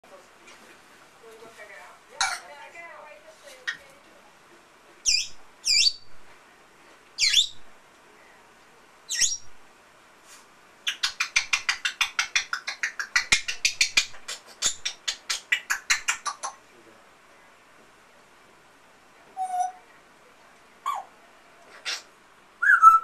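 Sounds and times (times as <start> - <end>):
parrot squawking: 5.0 - 6.0, 7.2 - 7.6, 9.1 - 9.5, 19.4 - 19.8, 20.8 - 21.2, 21.8 - 23.0.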